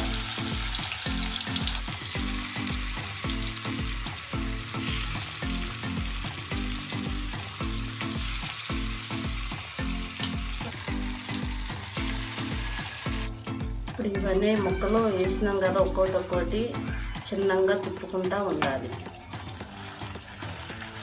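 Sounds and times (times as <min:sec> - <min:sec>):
fish sizzling in hot oil: 0:00.0 - 0:13.4, 0:19.2 - 0:21.0
background music with low beat: 0:00.0 - 0:21.0.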